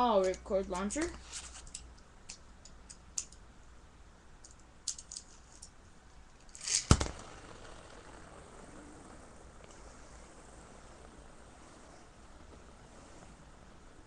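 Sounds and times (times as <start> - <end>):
spinning top smacking plastic lid: 6.6 - 8.2
spinning top hiss: 6.6 - 14.0.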